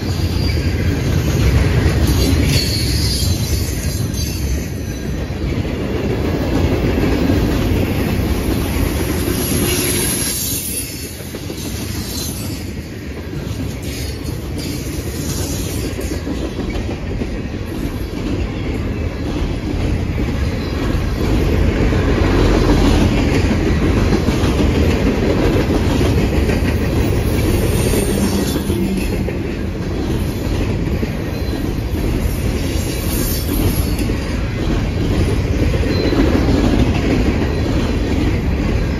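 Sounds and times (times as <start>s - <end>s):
high wheel squeals: 0.0s - 5.3s, 9.2s - 12.8s, 27.0s - 29.3s, 31.2s - 34.1s
train wheels rumbling and clattering: 0.0s - 38.9s.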